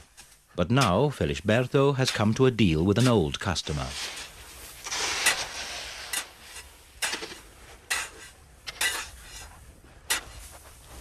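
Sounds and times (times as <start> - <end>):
shovels scraping through salt: 0.0 - 11.0.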